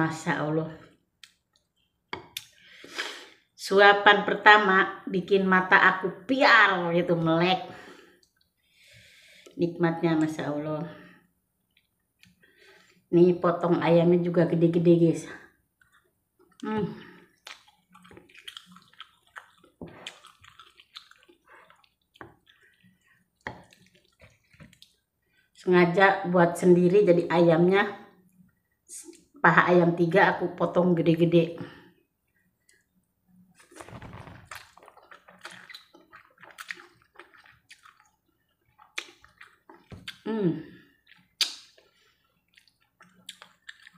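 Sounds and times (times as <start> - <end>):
wet chewing with smacks: 17.3 - 25.1, 34.5 - 40.3, 40.9 - 43.9
noodles being slurped: 17.4 - 25.0.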